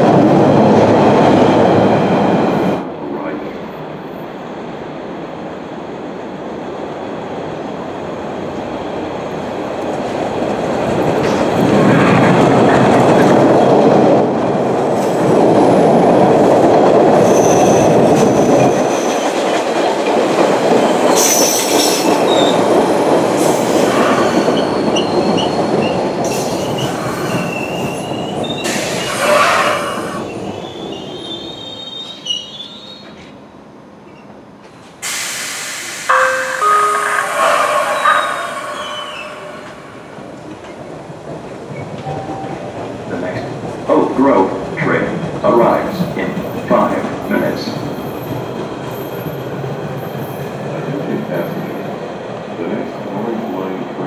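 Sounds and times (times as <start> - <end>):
train rumble: 34.4 - 54.0.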